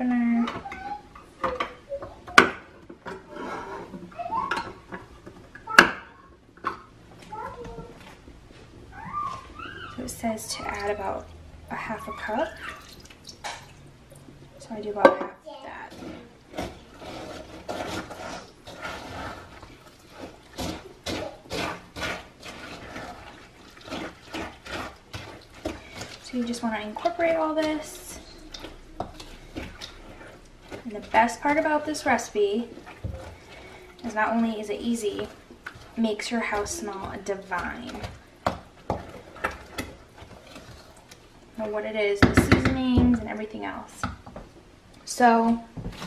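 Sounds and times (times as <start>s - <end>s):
wet mixing strokes in a bowl: 7.2s - 14.8s, 15.6s - 46.0s
can opener grinding metal: 15.7s - 40.8s.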